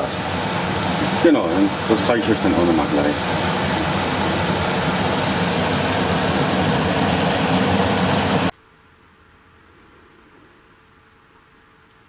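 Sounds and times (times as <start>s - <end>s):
stove rushing noise: 0.0s - 8.5s.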